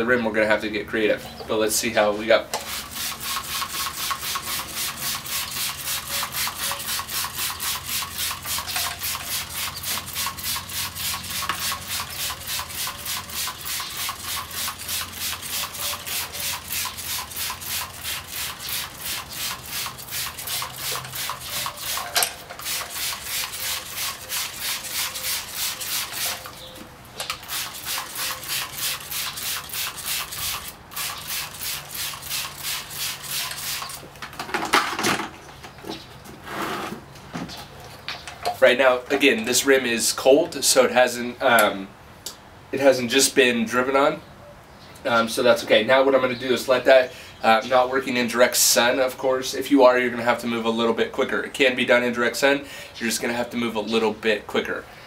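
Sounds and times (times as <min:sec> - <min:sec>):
spray bottle squirting: 0:02.5 - 0:34.1.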